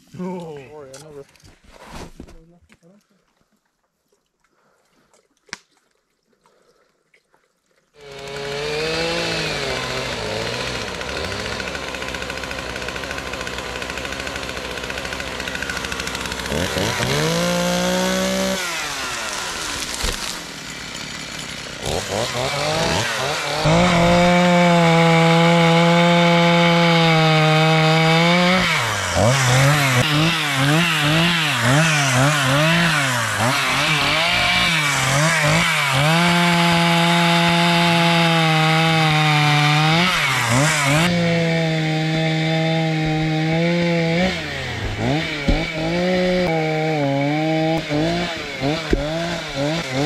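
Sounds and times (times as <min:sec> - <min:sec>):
chainsaw cutting wood: 0:08.0 - 0:50.0.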